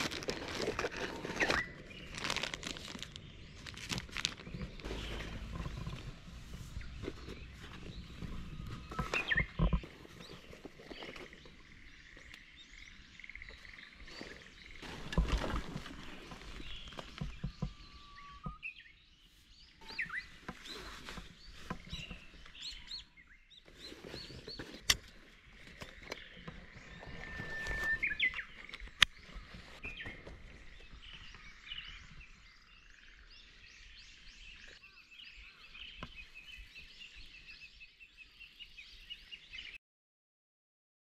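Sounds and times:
rustling: 0:00.0 - 0:11.4, 0:14.0 - 0:17.9, 0:19.9 - 0:22.8
small birds chirping: 0:00.0 - 0:39.8.

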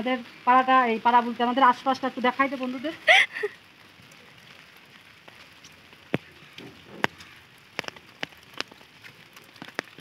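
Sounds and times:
light rain falling: 0:00.0 - 0:10.0
drops tapping umbrella: 0:03.8 - 0:10.0.

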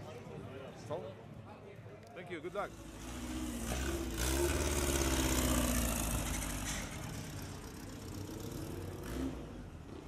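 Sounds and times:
race buggy engine running: 0:02.7 - 0:10.0.

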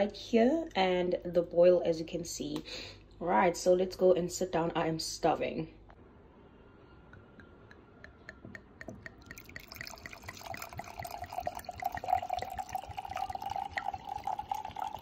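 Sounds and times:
wine pouring into a glass: 0:08.8 - 0:15.0.

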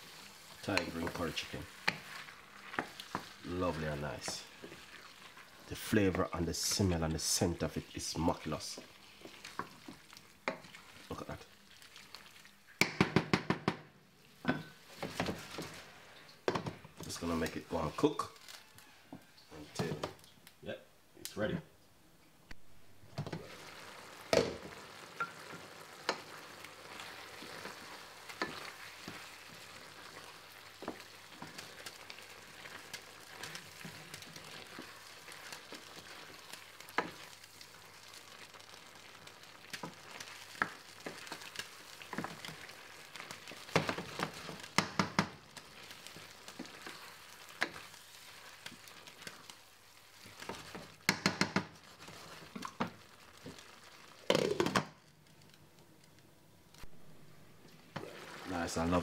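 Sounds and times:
chicken sizzling in a pan: 0:00.0 - 0:12.9, 0:14.2 - 0:20.0, 0:23.0 - 0:55.7, 0:57.1 - 0:59.0
utensil knocking on pan: 0:12.8 - 0:13.8, 0:51.1 - 0:51.7.

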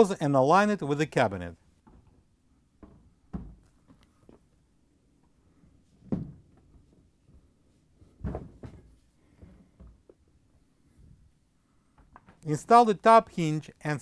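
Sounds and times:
refrigerator door thumps and knocks: 0:02.8 - 0:03.6.

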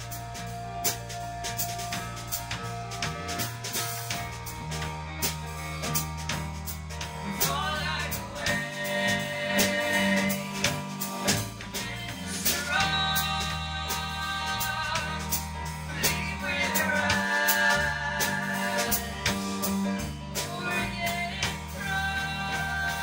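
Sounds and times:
drum kit with cymbals: 0:00.0 - 0:23.0
keyboard: 0:00.0 - 0:23.0
woman singing: 0:07.2 - 0:23.0.

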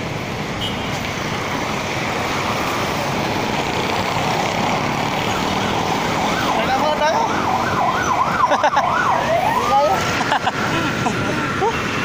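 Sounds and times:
road traffic passing: 0:00.0 - 0:12.0
siren wailing: 0:05.3 - 0:10.2.

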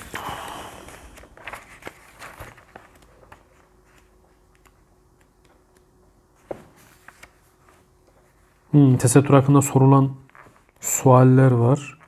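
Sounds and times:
book pages rustling: 0:00.0 - 0:08.6, 0:10.3 - 0:10.8.

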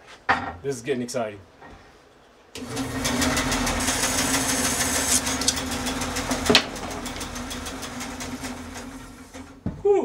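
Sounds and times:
band saw cutting wood: 0:02.6 - 0:09.6.

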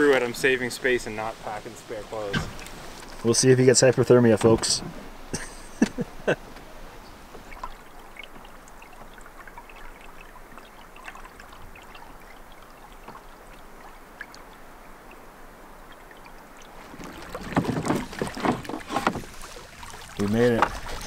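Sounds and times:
lake water lapping: 0:00.0 - 0:21.0
small drips and splashes: 0:05.4 - 0:21.0.

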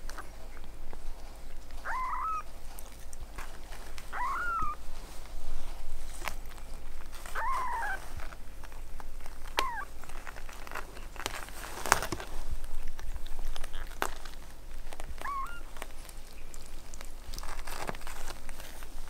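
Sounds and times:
small clicks and rustles: 0:00.0 - 0:19.0
kitten mewing: 0:01.8 - 0:03.0, 0:04.0 - 0:04.8, 0:07.2 - 0:08.3, 0:09.5 - 0:10.0, 0:15.1 - 0:15.8.

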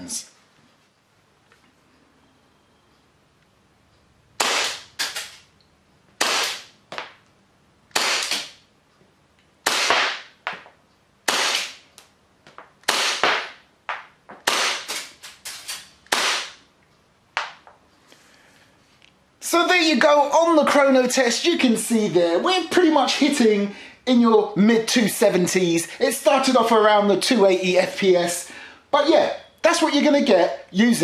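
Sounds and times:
airsoft pistol shots: 0:04.4 - 0:05.4, 0:06.2 - 0:06.7, 0:07.9 - 0:08.6, 0:09.6 - 0:10.4, 0:11.2 - 0:11.8, 0:12.8 - 0:13.6, 0:14.4 - 0:15.2, 0:16.1 - 0:16.6.

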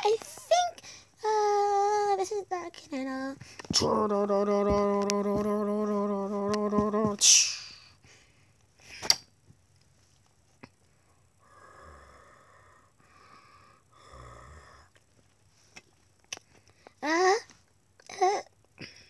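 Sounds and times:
person making wheezy droning tones: 0:11.1 - 0:15.0.

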